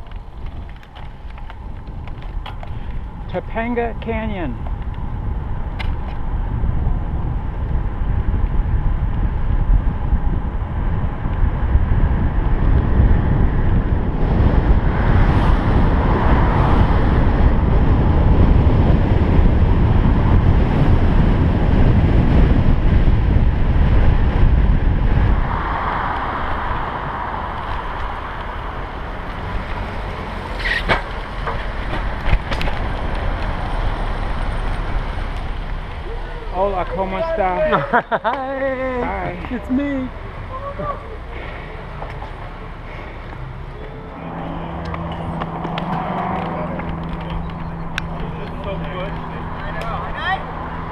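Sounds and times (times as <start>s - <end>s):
wind buffeting microphone: 0.0s - 50.9s
rolling noise: 42.0s - 50.9s.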